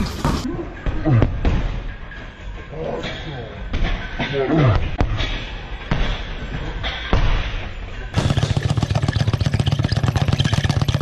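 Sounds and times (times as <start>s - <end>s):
speed bag rattling: 8.2s - 11.0s.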